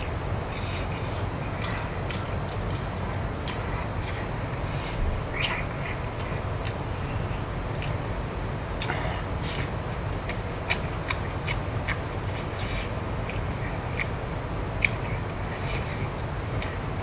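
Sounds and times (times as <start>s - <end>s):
man chewing with wet smacks: 0.0s - 17.0s
steady low hum: 0.0s - 17.0s.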